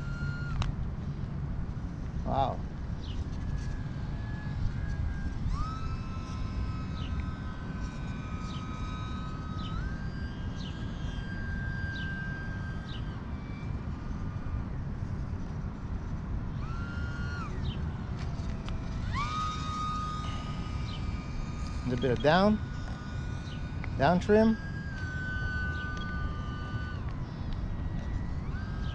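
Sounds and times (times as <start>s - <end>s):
electric motor and propeller whining: 0.0s - 28.9s.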